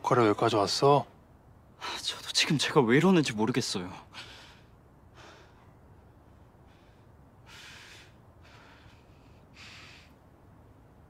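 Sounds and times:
man breathing through mouth: 6.6s - 10.2s.

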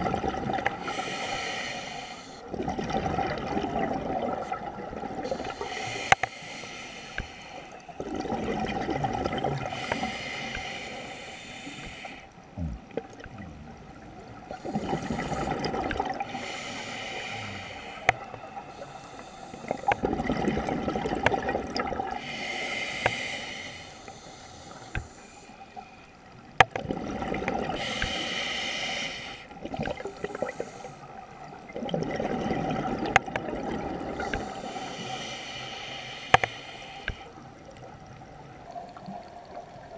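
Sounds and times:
gurgle of exhaled bubbles: 0.0s - 0.9s, 2.5s - 5.6s, 8.0s - 9.9s, 12.5s - 16.4s, 19.7s - 22.2s, 26.7s - 27.9s, 31.6s - 34.6s
scuba regulator inhale hiss: 0.8s - 2.5s, 5.3s - 7.9s, 9.6s - 12.4s, 14.5s - 20.0s, 22.2s - 26.0s, 27.8s - 31.1s, 34.2s - 37.4s.

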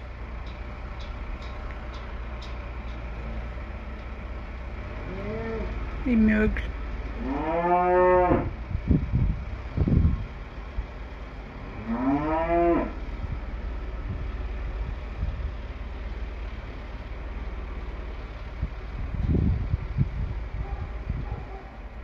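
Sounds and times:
tractor engine rumble: 0.0s - 22.0s
bull mooing: 5.0s - 5.9s, 7.1s - 8.6s, 11.6s - 13.0s.

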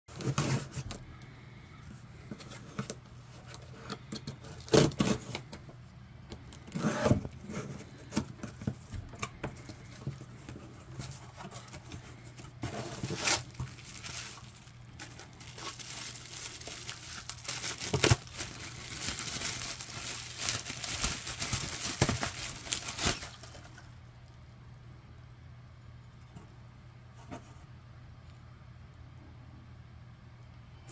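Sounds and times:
bubble wrap crinkling: 6.5s - 23.9s.

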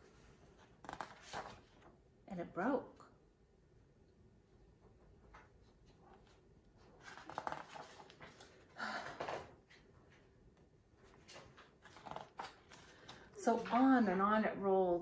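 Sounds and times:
book pages turning: 0.2s - 2.0s, 5.3s - 9.8s, 11.0s - 13.7s.

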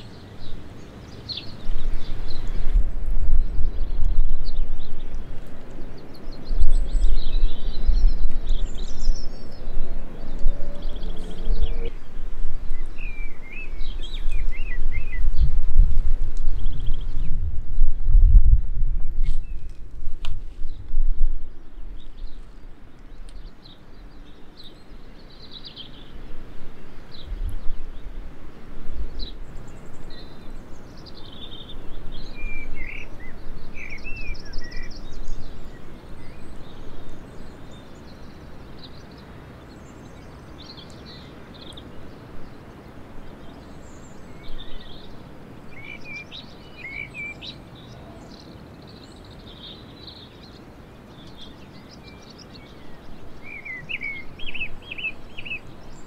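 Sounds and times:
songbirds chirping and trilling: 0.0s - 56.0s
steady outdoor hiss: 0.0s - 56.0s
low rumble: 6.6s - 13.4s.

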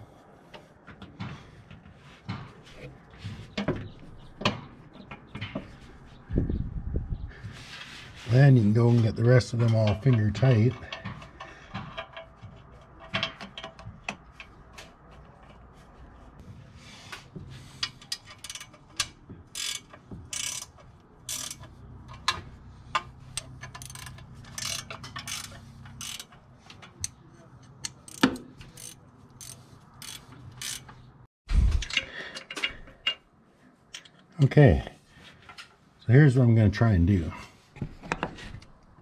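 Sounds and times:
ratchet wrench clicking: 17.8s - 22.4s, 23.4s - 26.4s, 27.0s - 31.0s.

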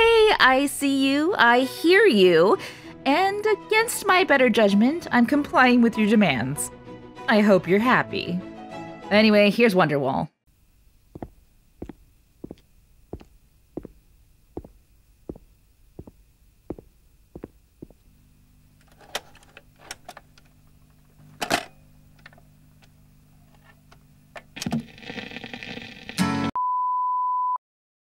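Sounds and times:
record changer motor hum: 10.5s - 24.9s
record surface crackle: 10.5s - 26.3s
footsteps: 10.6s - 18.2s.

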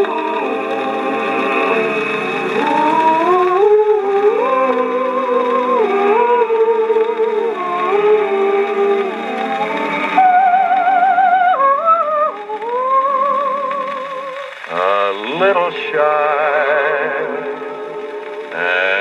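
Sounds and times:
man singing with vibrato: 0.0s - 19.0s
backing vocal group: 14.7s - 19.0s.

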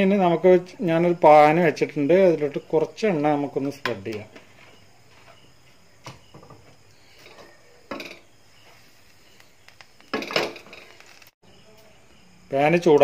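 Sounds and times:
frying pan clattering on grate: 10.1s - 11.0s.

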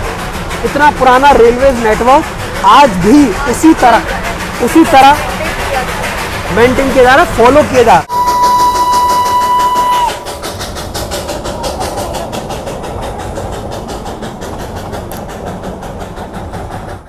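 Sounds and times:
steam train rhythmic chugging: 0.0s - 17.0s
steam whistle blast: 8.1s - 10.3s.

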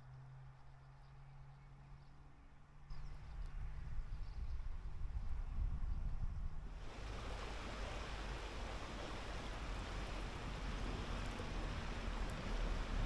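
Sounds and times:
river water flowing: 6.8s - 13.0s.

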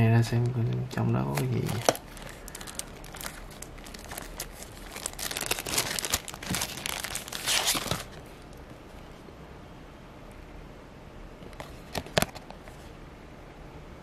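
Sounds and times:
plastic bag crinkling: 1.2s - 8.6s.

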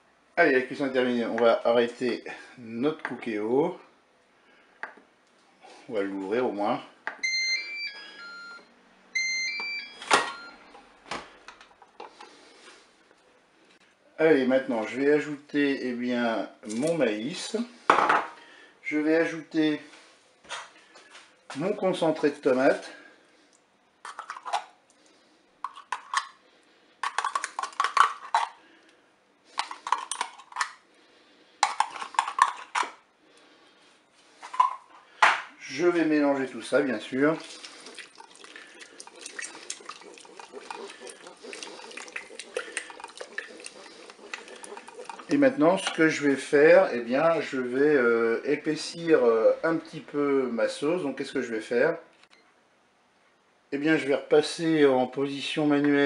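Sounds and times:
spoon scraping a container: 24.0s - 24.7s, 25.6s - 26.4s, 29.5s - 30.8s, 31.6s - 32.9s, 37.4s - 46.2s.

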